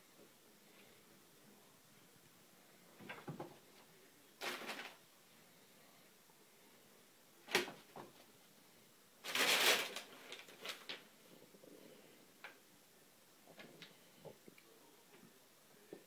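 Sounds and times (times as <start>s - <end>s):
paper bag rustling and crackling: 4.4s - 5.0s, 9.2s - 11.0s.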